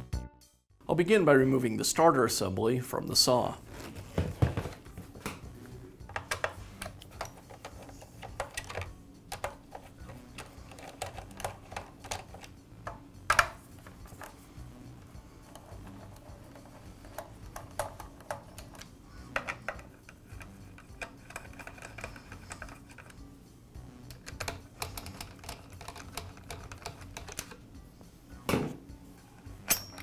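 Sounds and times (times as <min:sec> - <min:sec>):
soft background music: 0:00.0 - 0:30.0
screwdriver clicking and scraping: 0:06.1 - 0:12.6, 0:15.4 - 0:23.2, 0:24.1 - 0:27.6.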